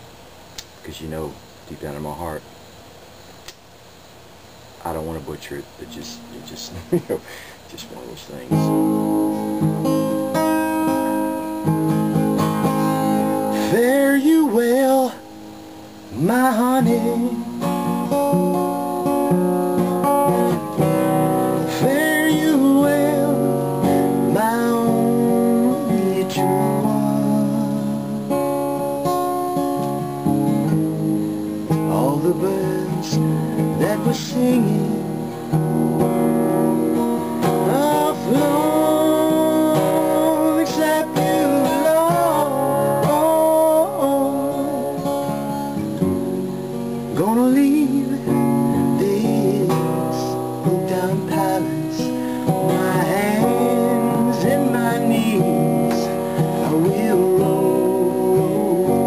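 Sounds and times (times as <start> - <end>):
acoustic guitar strummed: 4.0 - 59.0
man singing: 12.9 - 15.3, 16.1 - 18.1, 21.1 - 28.4, 31.7 - 35.5, 37.4 - 46.2, 47.0 - 59.0.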